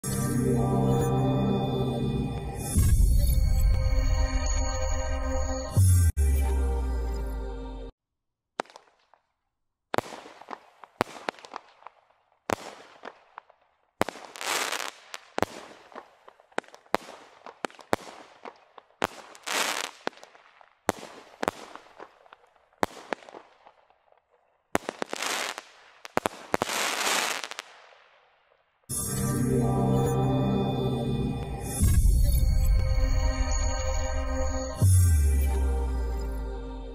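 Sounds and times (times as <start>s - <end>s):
firework bangs: 9.9s - 23.8s, 24.7s - 28.2s
firework hissing and crackling: 14.1s - 15.8s, 19.1s - 20.2s, 24.8s - 27.8s.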